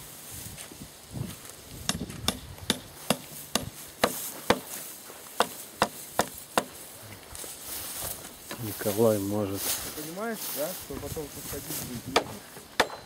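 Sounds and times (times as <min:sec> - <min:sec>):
hand tool striking wood: 0:01.8 - 0:04.8, 0:05.4 - 0:06.8, 0:12.1 - 0:13.0.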